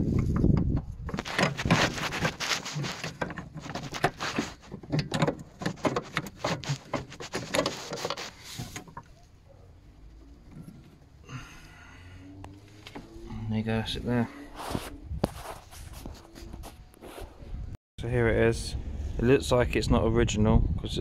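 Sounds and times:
metal parts clicking and rattling: 0.1 - 9.1.

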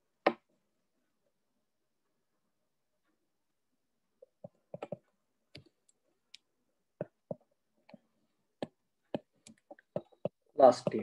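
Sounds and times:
stylus tapping a pen tablet: 0.2 - 0.5, 4.2 - 11.0.

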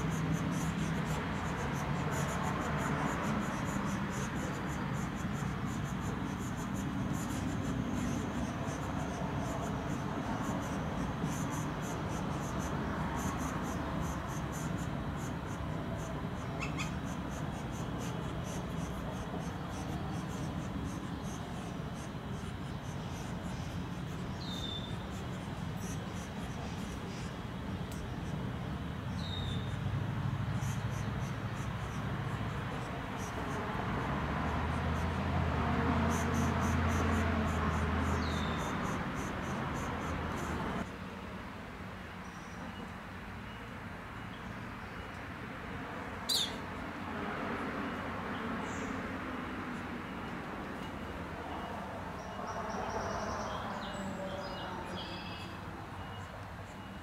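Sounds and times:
bird chirp: 0.0 - 33.6, 36.1 - 40.6, 46.3 - 46.6, 50.2 - 57.0.

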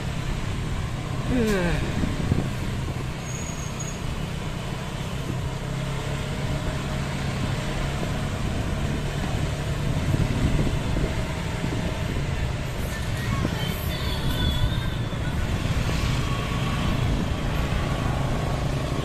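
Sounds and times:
bicycle road rumble: 0.0 - 19.0
passing motor traffic: 0.0 - 19.0
wind on microphone: 1.7 - 3.1, 9.7 - 18.4.

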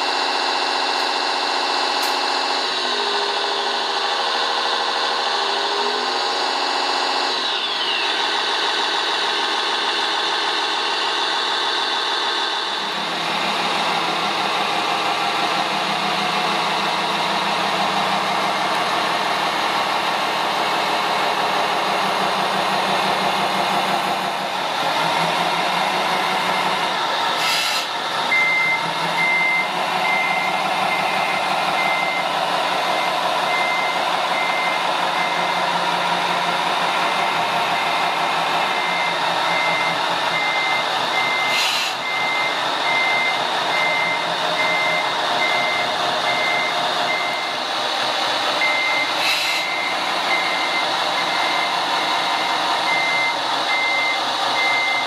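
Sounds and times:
reversing beeper: 0.0 - 47.7, 48.6 - 55.0
model truck engine sound: 0.0 - 55.0
short air hisses: 27.4 - 27.9, 41.5 - 42.0, 49.2 - 49.7.

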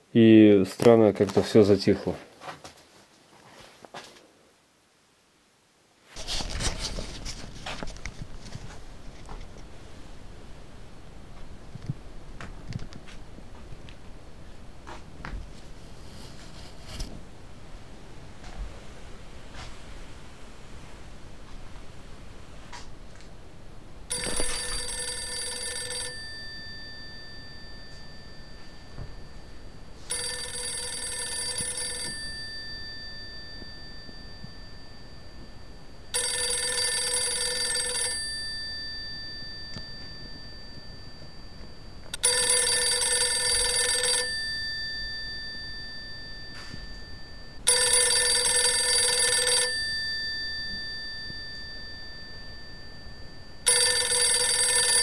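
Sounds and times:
telephone bell ringing: 24.1 - 55.0.

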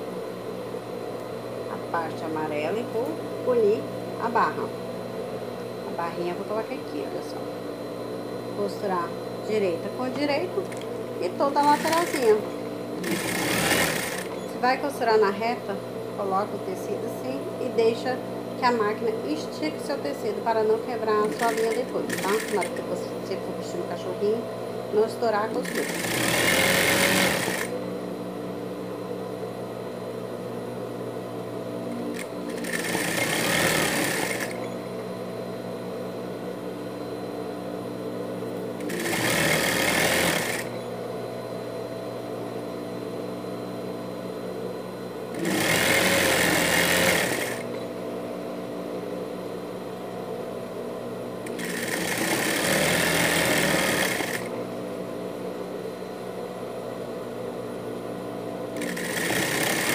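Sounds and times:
sewing machine hum: 10.1 - 14.7, 21.2 - 23.2, 25.5 - 27.8, 31.9 - 34.7, 38.8 - 40.8, 45.3 - 47.8, 51.4 - 54.6, 58.8 - 59.9
sewing machine stitching: 11.5 - 12.4, 13.0 - 14.4, 21.2 - 22.9, 25.6 - 27.7, 32.1 - 34.6, 38.8 - 40.7, 45.4 - 47.7, 51.5 - 54.5, 58.8 - 59.9.

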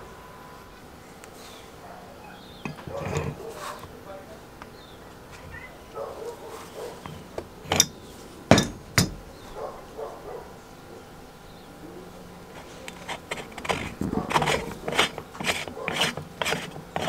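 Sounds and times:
gritty scraping of thread: 2.6 - 3.9, 6.5 - 8.7, 12.5 - 17.0
wrench knocking on metal: 7.1 - 9.2.

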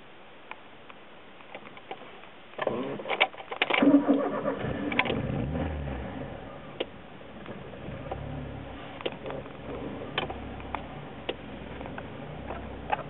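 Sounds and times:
engine cranking on starter: 2.6 - 6.4
car engine running and stalling: 2.6 - 13.0.

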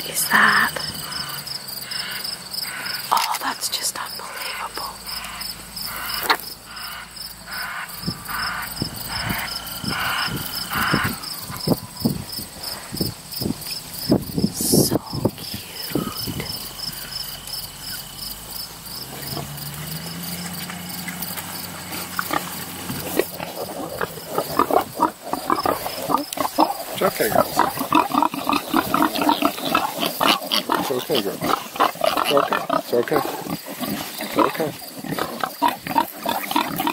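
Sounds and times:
insects chirping: 0.0 - 36.9
piglets squealing and grunting: 5.2 - 11.9, 22.1 - 36.9.

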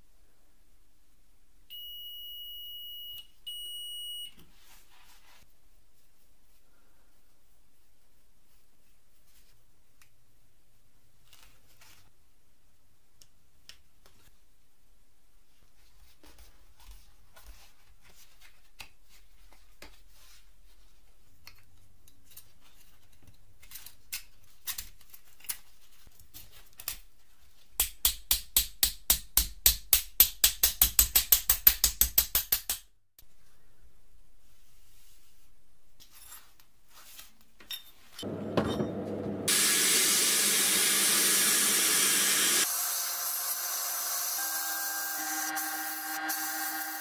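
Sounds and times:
hammer tapping metal plates: 27.8 - 32.9.

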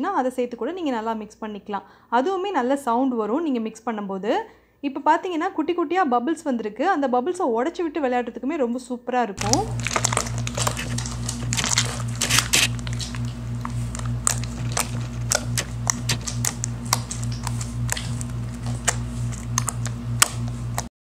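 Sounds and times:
low pulsing hum: 9.4 - 20.9
slime squeezed with wet pops: 9.4 - 20.9.

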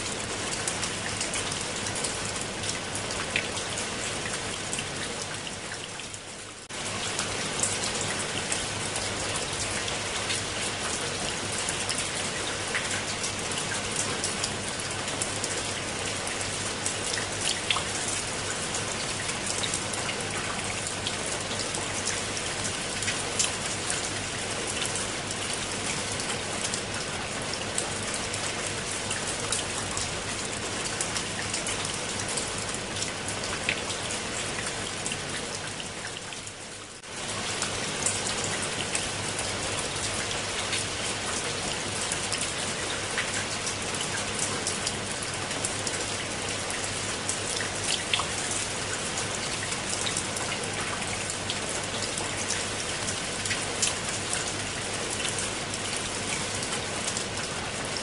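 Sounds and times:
rain on concrete and plants: 0.0 - 58.0.

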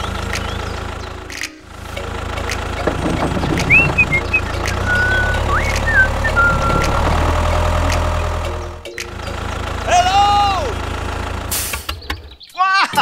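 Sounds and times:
tractor engine running: 0.0 - 12.5
high whistle-like chirps: 3.7 - 7.1.

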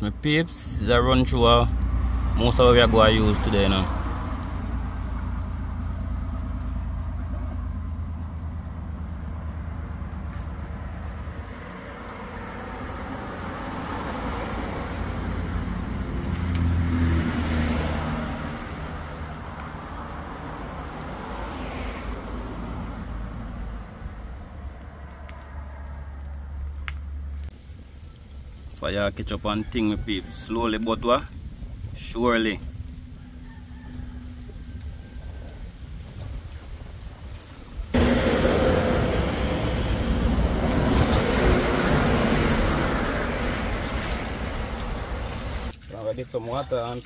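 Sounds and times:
vehicle passing by: 0.6 - 28.0, 37.8 - 45.7
steady low rumble: 34.2 - 45.7.

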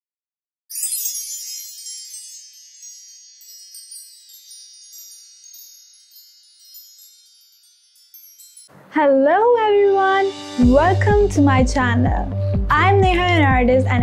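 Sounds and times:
shimmering wind-chime tones: 0.7 - 8.7.

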